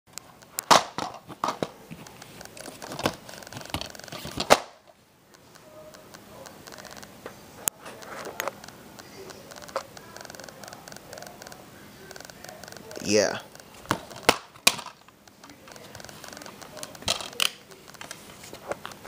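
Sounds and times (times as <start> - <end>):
plastic cases clacking: 0.6 - 4.6, 13.7 - 19.0
scratchy handling noise: 1.2 - 4.6, 5.5 - 19.0.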